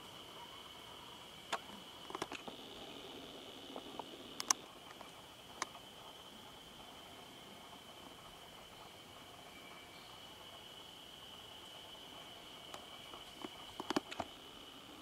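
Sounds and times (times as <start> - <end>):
high-pitched insect drone: 0.0 - 15.0
sharp clicks: 1.5 - 2.6, 3.7 - 5.8, 12.7 - 14.3.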